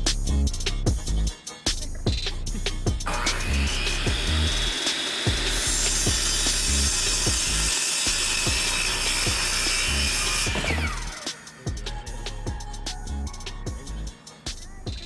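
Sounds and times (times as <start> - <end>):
miter saw cutting wood: 3.1 - 12.1.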